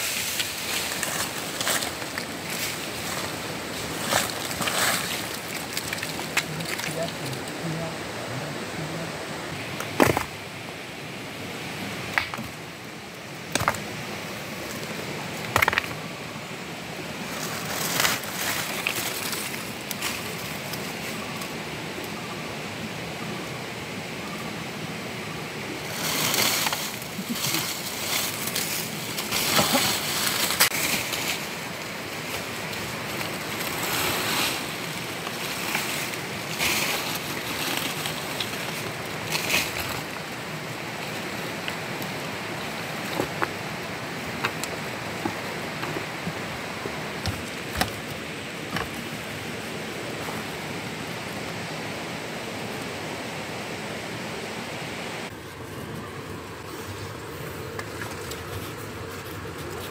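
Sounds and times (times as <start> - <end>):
dry leaves rustling and scraping: 0.0 - 7.7, 13.8 - 21.6, 25.8 - 52.7, 55.2 - 59.9
steady rushing hiss: 0.0 - 59.9.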